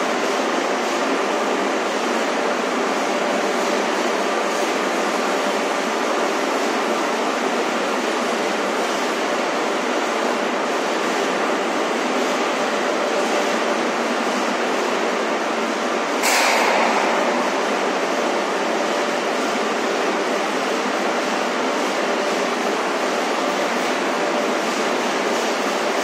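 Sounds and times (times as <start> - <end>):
factory machinery din: 16.1 - 26.0.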